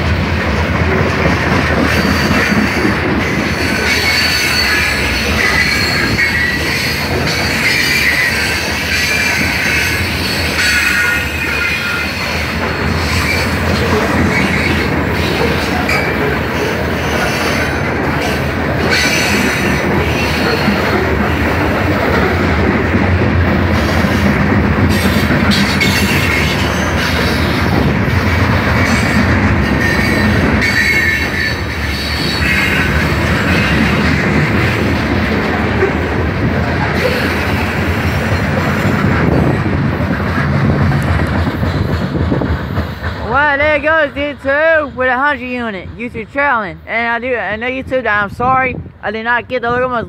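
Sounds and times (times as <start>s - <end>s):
steel wheels rumbling on rail: 0.0s - 50.0s
high-pitched wheel squeals: 3.5s - 13.6s.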